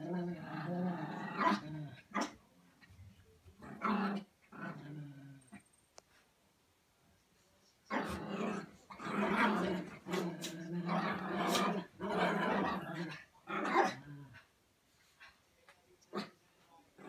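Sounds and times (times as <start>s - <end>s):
small dogs growling: 0.0s - 2.9s, 3.6s - 5.7s, 7.9s - 14.5s.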